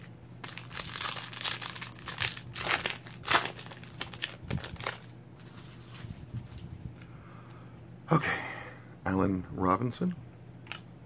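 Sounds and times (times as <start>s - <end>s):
wrapper crinkling and tearing: 0.0s - 6.6s.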